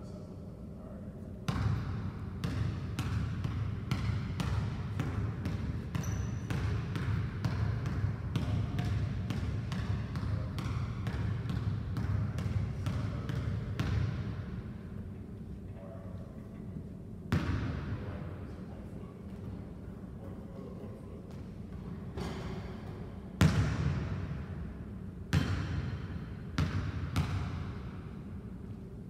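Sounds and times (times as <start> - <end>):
basketball bouncing on wooden floor: 1.5 - 14.1, 23.4 - 24.0, 25.3 - 25.9, 26.6 - 27.7.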